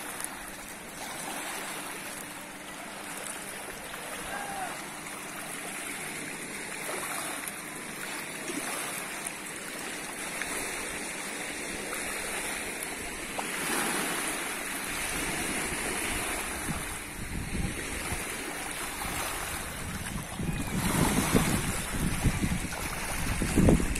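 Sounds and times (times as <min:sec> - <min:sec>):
small waves lapping on shore: 0:00.0 - 0:23.9
wind buffeting microphone: 0:15.0 - 0:23.9.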